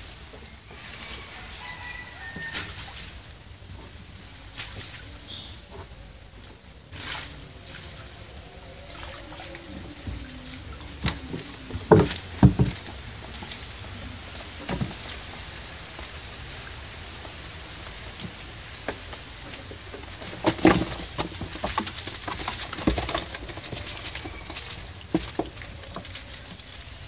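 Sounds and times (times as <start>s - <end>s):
steady high hiss: 0.0s - 23.0s
water sloshing and dripping: 0.8s - 27.0s
sharp knocks on wooden boat: 11.1s - 12.8s.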